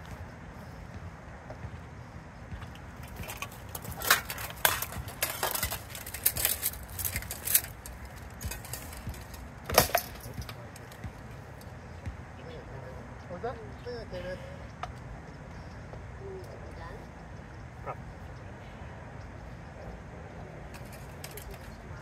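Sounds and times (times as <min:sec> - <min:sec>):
weapons clanking on plate armour: 0:03.0 - 0:11.0.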